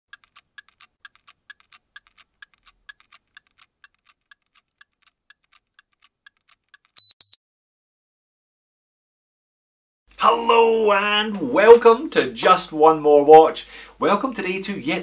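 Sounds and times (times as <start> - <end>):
watch ticking: 0.1 - 7.2
short high-pitched beeps: 7.0 - 7.4.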